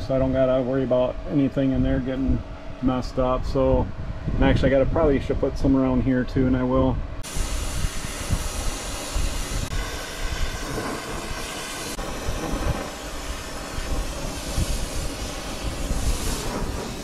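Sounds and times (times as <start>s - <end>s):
torch flame hissing: 7.2s - 17.0s.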